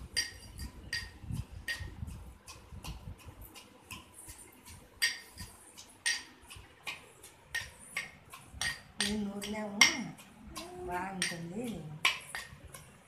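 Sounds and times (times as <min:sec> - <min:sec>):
metal spoon clinking in steel cup: 0:00.1 - 0:01.9.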